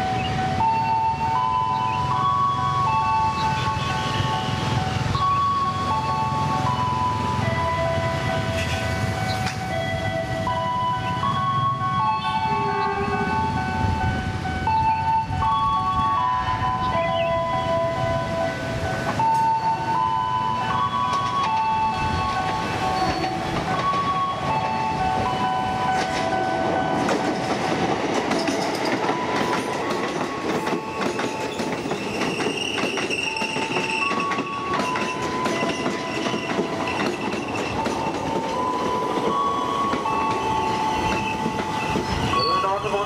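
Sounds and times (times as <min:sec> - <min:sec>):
electric train whine: 0:00.0 - 0:43.0
train rumble: 0:00.0 - 0:43.0
wheels clattering over rail joints: 0:20.7 - 0:43.0.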